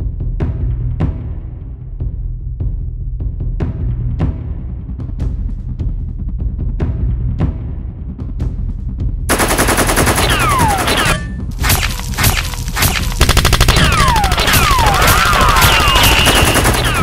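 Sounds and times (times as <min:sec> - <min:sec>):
automatic gunfire: 0:09.3 - 0:11.2, 0:11.8 - 0:17.0.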